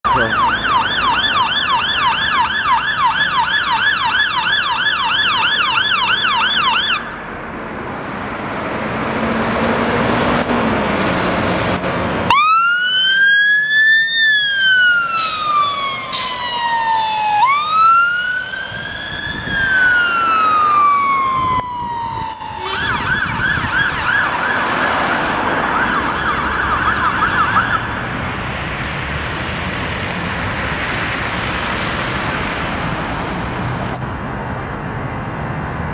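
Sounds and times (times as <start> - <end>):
road traffic: 0.0 - 35.9
fire engine siren wailing and yelping: 0.1 - 7.4, 12.3 - 28.2.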